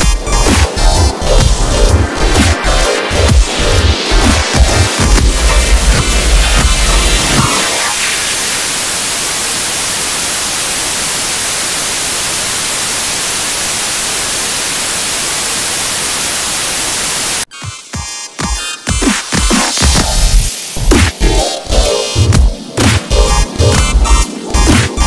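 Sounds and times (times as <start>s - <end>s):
electronic music with a beat: 0.0s - 8.5s, 17.5s - 25.0s
loud static hiss: 0.0s - 17.5s, 19.8s - 25.0s.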